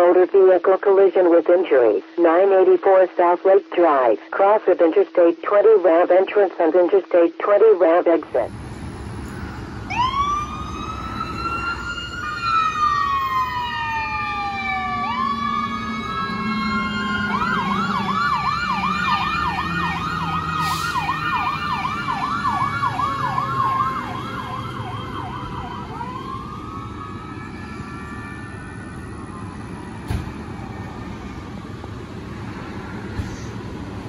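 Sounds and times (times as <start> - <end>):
emergency vehicle sirens: 8.0 - 34.0.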